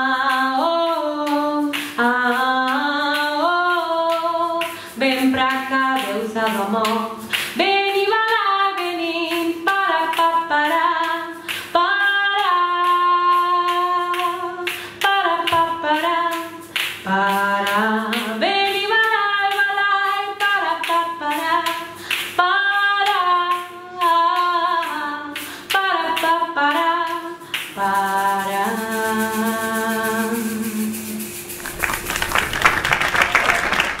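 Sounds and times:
woman singing: 0.0 - 31.4
hand shakers clicking and rattling: 0.0 - 34.0
audience applauding: 31.6 - 34.0.

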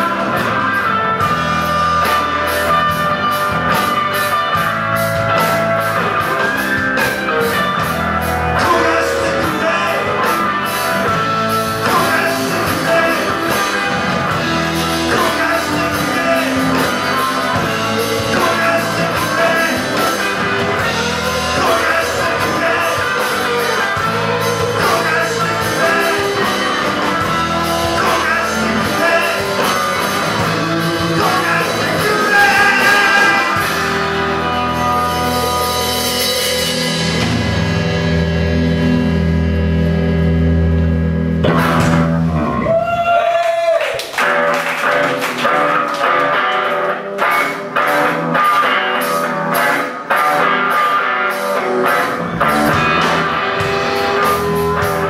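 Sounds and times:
man singing lead vocal: 0.0 - 1.0, 8.4 - 37.0
rock band playing: 0.0 - 55.0.

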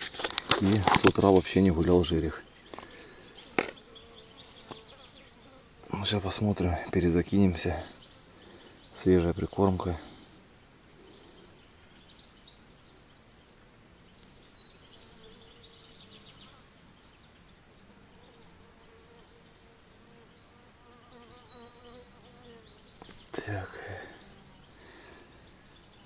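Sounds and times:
flying insect buzzing: 2.6 - 6.2, 14.2 - 26.0
faint bird chirps: 10.9 - 20.6, 21.2 - 26.0.

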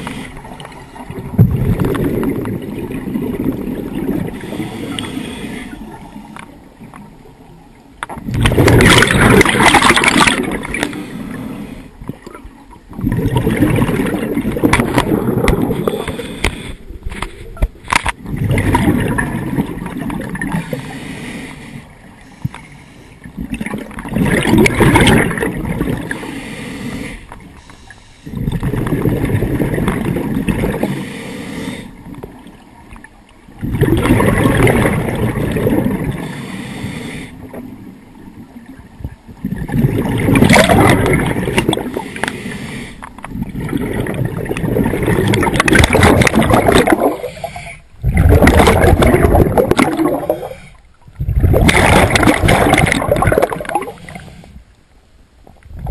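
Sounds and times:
diver exhaling bubbles: 1.0 - 5.4, 8.2 - 11.4, 13.0 - 16.6, 18.2 - 20.9, 23.4 - 26.5, 28.3 - 31.0, 33.6 - 36.3, 39.4 - 42.4, 43.3 - 54.4.

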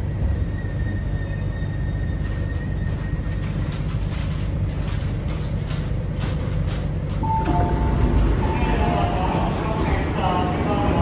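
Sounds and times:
metro train rumble: 0.0 - 11.0
clicks and knocks of train: 2.2 - 11.0.

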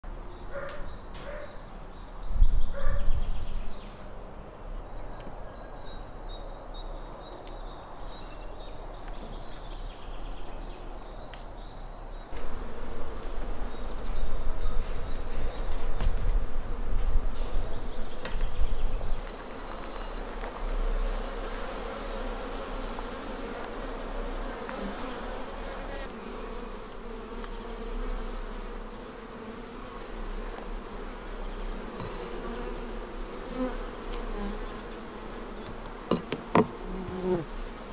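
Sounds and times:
bees buzzing: 12.4 - 37.9.

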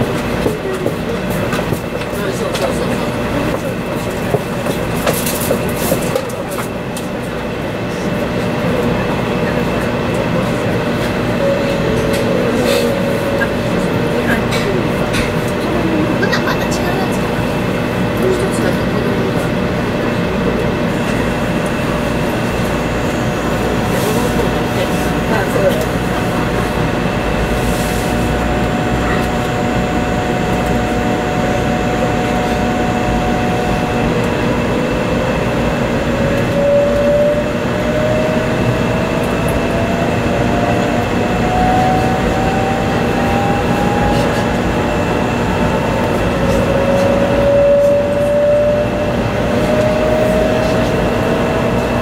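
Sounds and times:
train running rumble: 0.0 - 52.0
traction motor whine: 9.8 - 16.2, 28.3 - 52.0.

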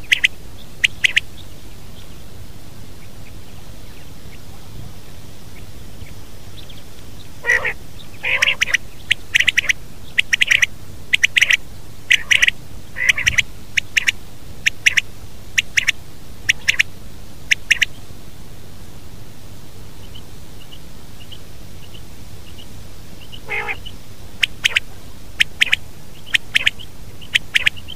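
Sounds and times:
quail calling: 0.0 - 1.4, 5.6 - 18.0, 20.0 - 27.9
steady background hiss: 0.0 - 27.9.

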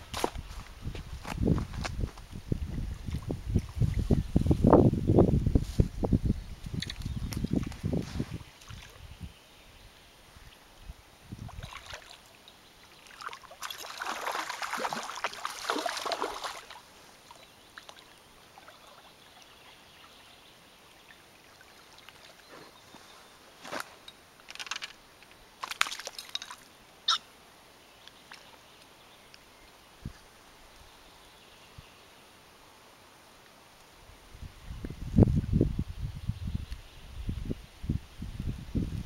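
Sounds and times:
rustles: 0.0 - 9.1, 21.9 - 26.8
fish splashing at water surface: 13.2 - 16.8.

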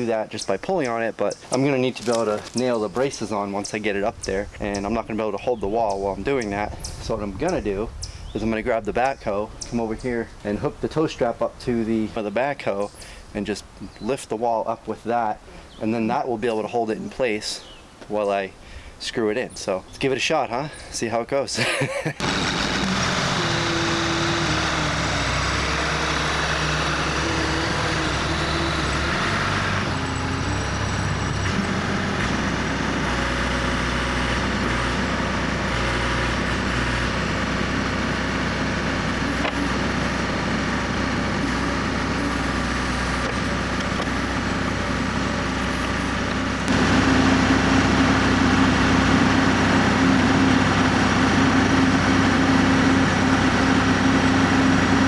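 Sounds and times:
diesel engine running: 0.0 - 13.2, 22.2 - 55.0
steady low drone: 22.2 - 55.0.

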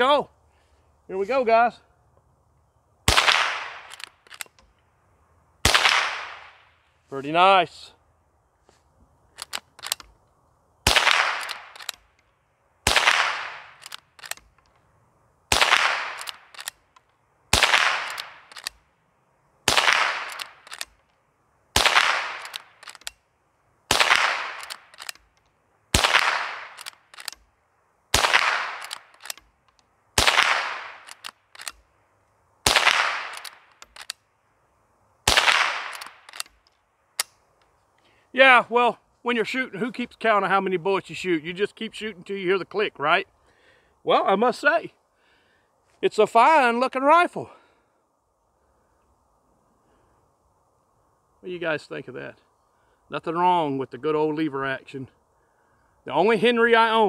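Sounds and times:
rifle shots: 3.1 - 4.6, 5.6 - 6.7, 10.8 - 12.1, 12.8 - 14.5, 15.5 - 16.8, 17.5 - 18.8, 19.6 - 21.0, 21.7 - 23.1, 23.9 - 25.3, 25.9 - 27.4, 28.1 - 29.5, 30.2 - 31.8, 32.6 - 34.1, 35.2 - 36.6
rifle lever clicks: 3.8 - 4.8, 9.3 - 10.2, 11.4 - 12.3, 13.7 - 14.8, 16.1 - 17.1, 18.0 - 18.8, 20.2 - 21.2, 22.4 - 23.2, 24.5 - 25.5, 26.6 - 27.5, 28.7 - 29.9, 31.0 - 31.8, 33.2 - 34.2, 35.8 - 37.7.

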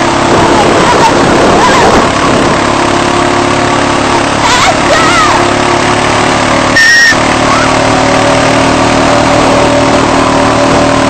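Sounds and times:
wind on microphone: 0.0 - 3.2
quad bike engine running: 0.0 - 11.0
brief high-pitched sound: 6.8 - 7.2.

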